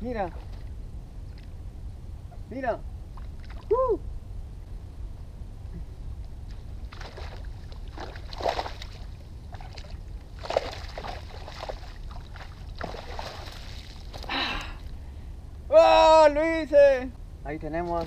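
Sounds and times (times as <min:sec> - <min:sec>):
water splashing and sloshing: 0:00.2 - 0:01.5, 0:03.1 - 0:03.8, 0:06.4 - 0:15.0, 0:17.8 - 0:18.0
fish thrashing at the surface: 0:06.9 - 0:14.3.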